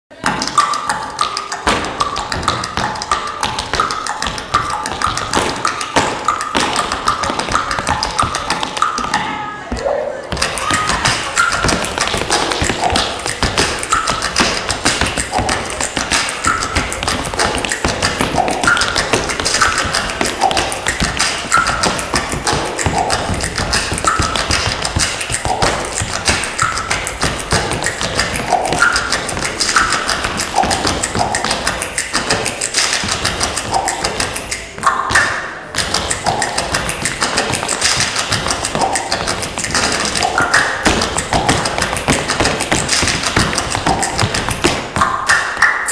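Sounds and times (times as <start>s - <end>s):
recorded music: 0.1s - 45.9s
tap shoes on stage floor: 1.6s - 45.2s.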